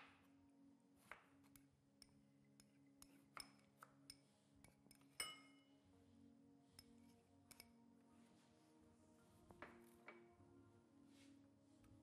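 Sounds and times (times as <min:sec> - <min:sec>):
ringing clink: 0:05.2 - 0:05.6.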